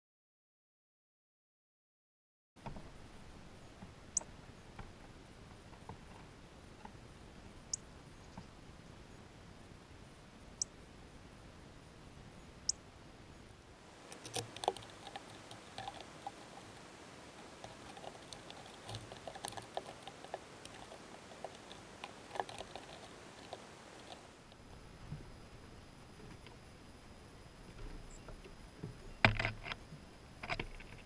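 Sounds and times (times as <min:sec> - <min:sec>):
bird pecking seeds on wood: 0:13.9 - 0:24.3.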